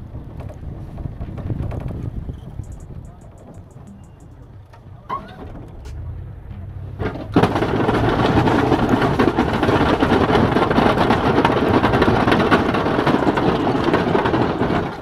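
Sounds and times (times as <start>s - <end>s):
truck engine running: 1.9s - 15.0s
plow blade scraping snow: 6.9s - 15.0s.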